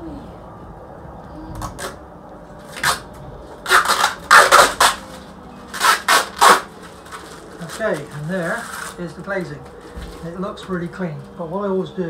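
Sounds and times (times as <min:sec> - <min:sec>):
plastic film crackling: 0:02.7 - 0:11.4.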